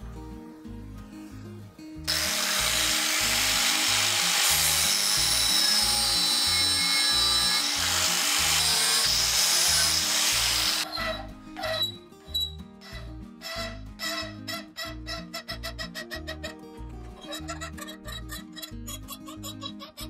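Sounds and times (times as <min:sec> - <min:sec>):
background music: 0:00.0 - 0:20.0
angle grinder cutting steel: 0:02.1 - 0:11.2
hand file rasping on steel: 0:02.1 - 0:16.4.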